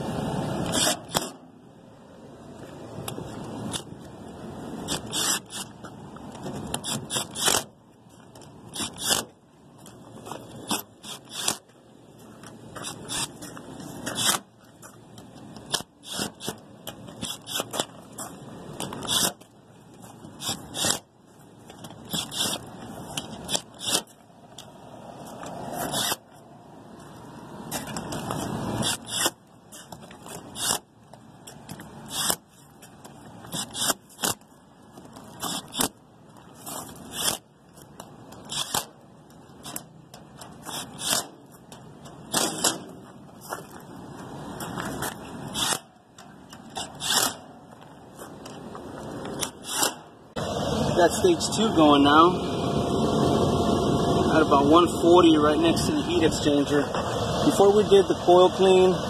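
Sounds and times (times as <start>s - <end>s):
impact driver bursts: 4.9s - 5.7s, 8.7s - 9.3s, 10.7s - 11.6s, 20.4s - 21.0s, 22.1s - 22.6s, 45.5s - 45.9s, 49.5s - 50.0s.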